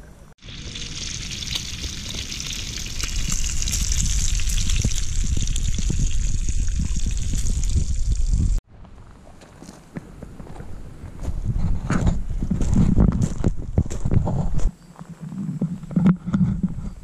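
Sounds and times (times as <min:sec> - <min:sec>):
bacon sizzling in a skillet: 0:00.4 - 0:08.6
low rumble: 0:00.7 - 0:08.6.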